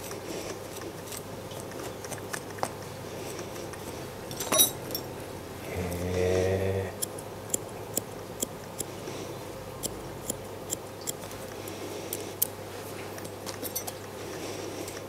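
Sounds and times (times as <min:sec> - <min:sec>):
scissors snipping fur: 0:00.0 - 0:04.4, 0:07.0 - 0:09.0, 0:09.8 - 0:12.6.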